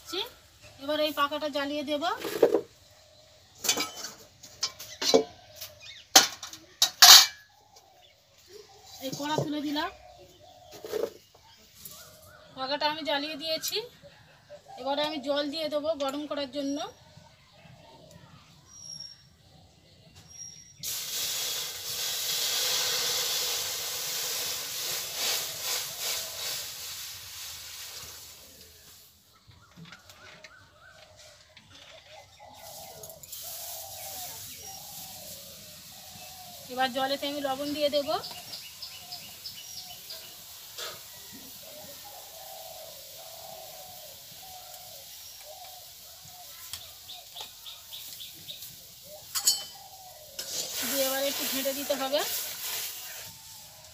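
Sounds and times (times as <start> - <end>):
water hissing in hot wok: 20.8 - 29.2, 32.4 - 53.9.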